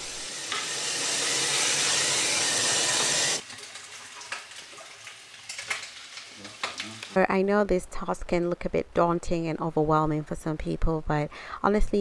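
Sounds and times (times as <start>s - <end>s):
tap water running into sink: 0.3s - 5.8s.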